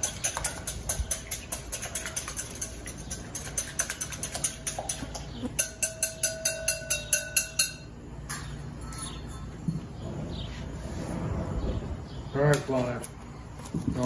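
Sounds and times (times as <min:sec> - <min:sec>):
whisk clicking against glass bowl: 0:00.0 - 0:07.8.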